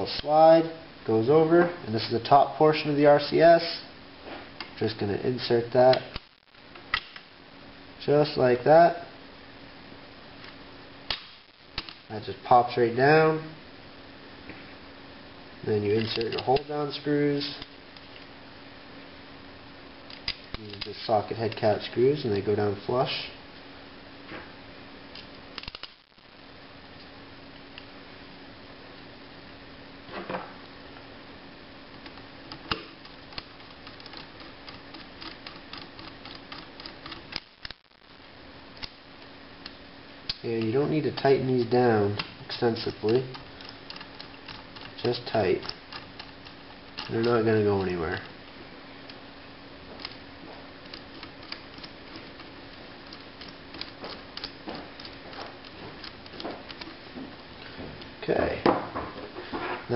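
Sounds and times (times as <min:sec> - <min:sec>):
faint steady hum: 0:00.0 - 0:59.9
sharp metal click: 0:25.1 - 0:26.0, 0:43.0 - 0:48.3
screwdriver ticking: 0:32.0 - 0:37.8, 0:42.1 - 0:48.3, 0:50.8 - 0:57.0.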